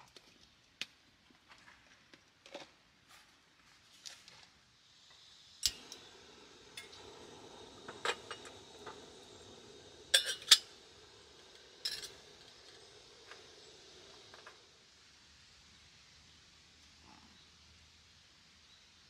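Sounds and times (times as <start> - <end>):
gas burner hissing: 3.8 - 19.0
gas igniter click: 5.6 - 6.1
metal kettle clinking: 5.6 - 6.1, 6.8 - 9.1, 10.0 - 13.5.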